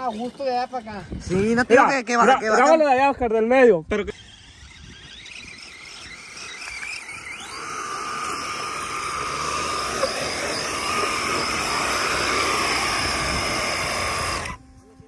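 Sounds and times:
electric motor whining: 0:03.8 - 0:15.0.

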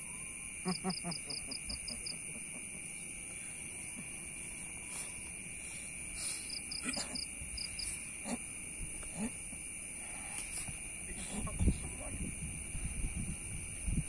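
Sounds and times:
crickets trilling: 0:00.0 - 0:14.0.

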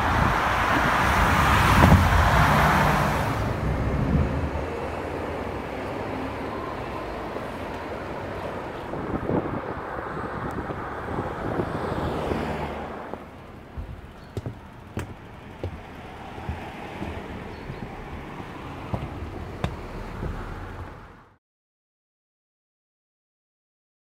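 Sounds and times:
wind buffeting microphone: 0:00.0 - 0:21.3
road traffic passing: 0:00.0 - 0:21.4
sharp clicks and knocks: 0:13.1 - 0:20.4.

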